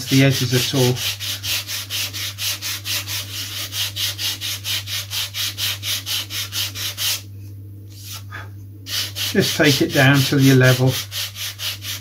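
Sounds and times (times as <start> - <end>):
sanding block rubbing foam: 0.0 - 7.2, 8.9 - 12.0.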